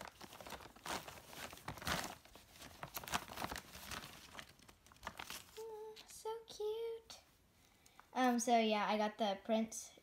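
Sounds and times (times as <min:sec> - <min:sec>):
plastic bag crinkling: 0:00.0 - 0:06.2.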